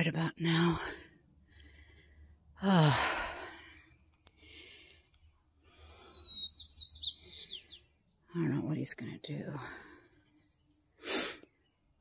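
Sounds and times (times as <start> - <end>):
faint breathing: 0.8 - 6.4
woman sighing: 2.6 - 3.8.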